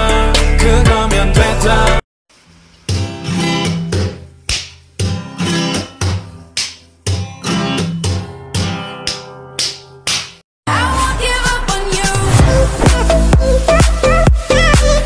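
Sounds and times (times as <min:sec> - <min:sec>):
plucked string instrument strumming: 0:02.9 - 0:10.1.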